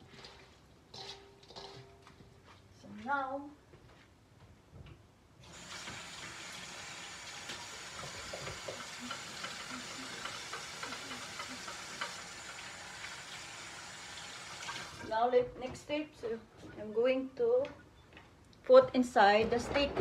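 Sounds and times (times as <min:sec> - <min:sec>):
water running into sink: 0:05.4 - 0:15.1.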